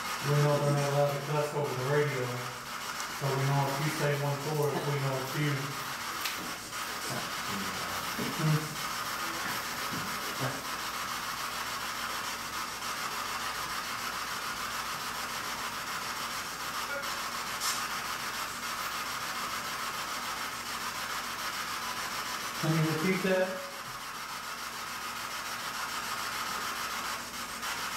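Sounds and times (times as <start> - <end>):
radio static hiss: 0.2 - 10.8.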